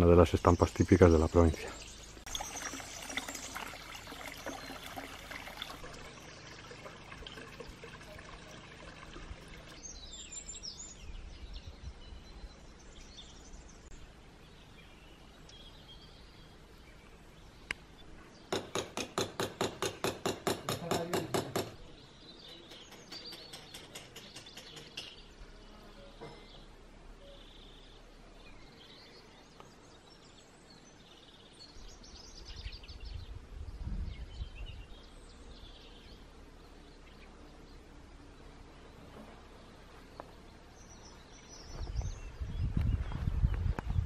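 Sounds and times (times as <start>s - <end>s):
small birds chirping: 0.0s - 44.0s
fountain trickling into stone trough: 2.2s - 9.8s.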